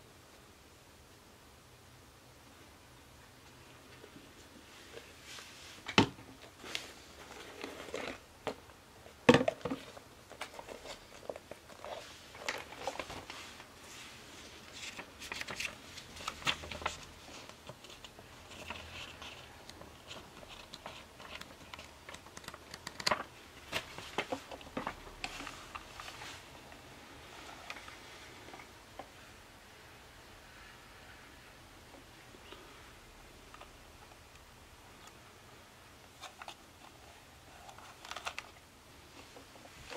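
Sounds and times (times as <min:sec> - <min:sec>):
paper leaflet rustling: 0:09.7 - 0:26.5.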